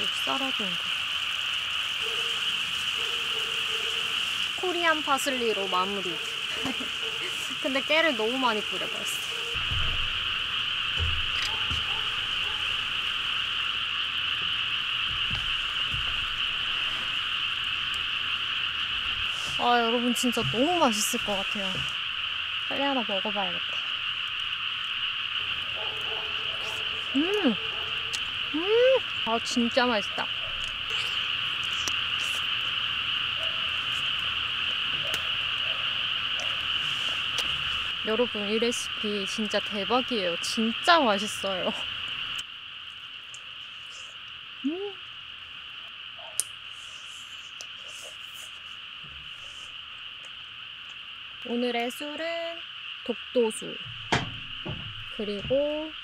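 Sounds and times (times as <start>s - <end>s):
frogs calling: 0.0s - 56.0s
griddle pan knocks: 53.9s - 55.0s.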